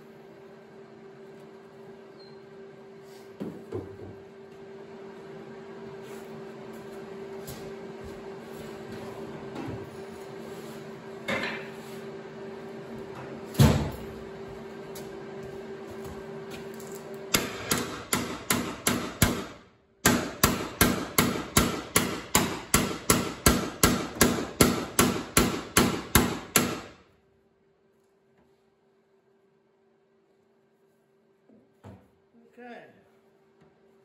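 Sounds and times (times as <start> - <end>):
hammer striking sheet steel: 17.3 - 27.1.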